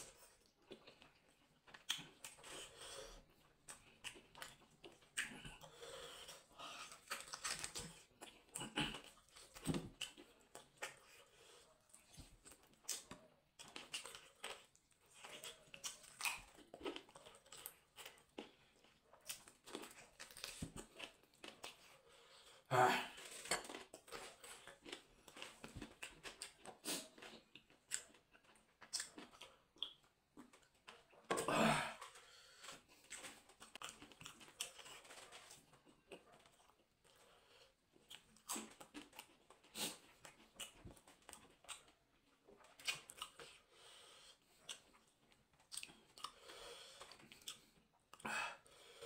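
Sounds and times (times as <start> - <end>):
wet chewing: 0.0 - 22.6, 23.2 - 49.0
meat tearing from bone: 7.0 - 8.0.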